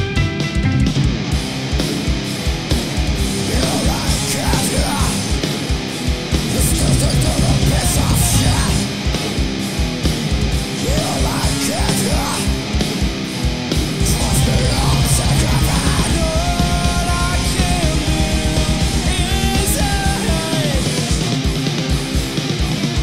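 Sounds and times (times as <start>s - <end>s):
distorted electric guitars: 0.0s - 23.0s
drum kit: 0.0s - 23.0s
fast kick drum: 14.0s - 20.3s.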